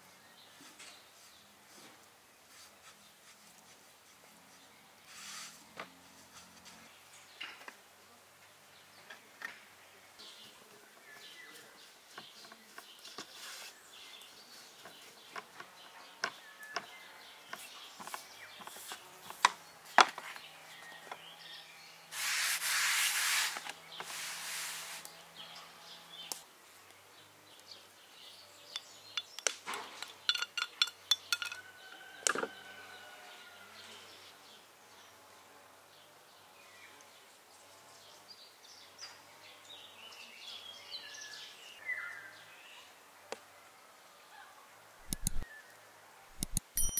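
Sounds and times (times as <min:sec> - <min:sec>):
rustling: 0:00.6 - 0:07.0, 0:11.8 - 0:15.2, 0:22.1 - 0:25.1
rubbing on wooden board: 0:22.2 - 0:25.1
bird chirping: 0:27.2 - 0:32.2, 0:45.0 - 0:45.7, 0:46.4 - 0:46.9
spoons clinking on glass bowls: 0:30.2 - 0:31.7.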